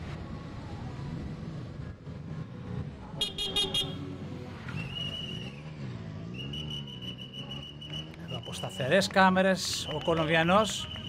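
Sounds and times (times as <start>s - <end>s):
motorcycle engines passing: 0.0s - 11.0s
horn tooting: 3.2s - 4.0s.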